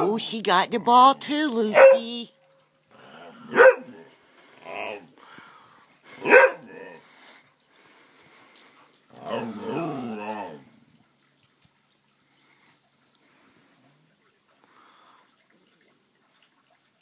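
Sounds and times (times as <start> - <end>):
dog barking: 1.7 - 2.0, 3.5 - 4.0, 6.2 - 6.8
dog grumbling: 4.6 - 5.0, 9.1 - 10.7.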